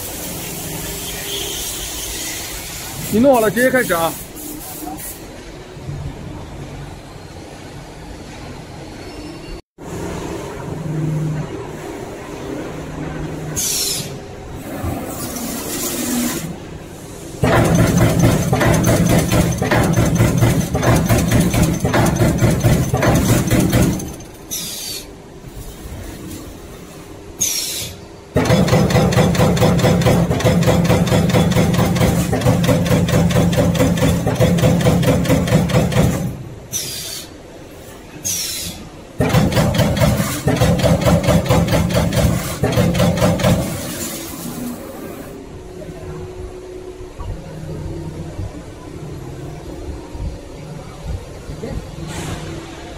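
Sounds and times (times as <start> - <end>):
punch press punching sheet metal: 17.4 - 24.4, 28.4 - 36.5, 39.2 - 44.5.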